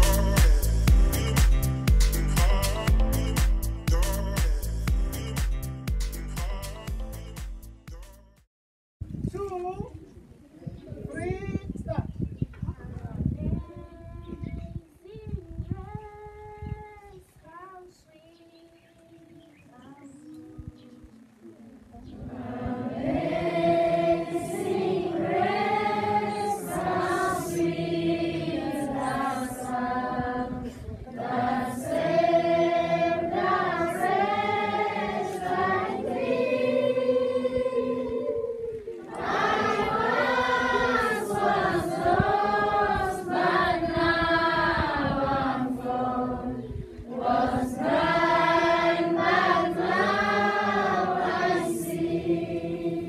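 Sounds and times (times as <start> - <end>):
choir singing: 0.0 - 1.4, 22.1 - 53.0.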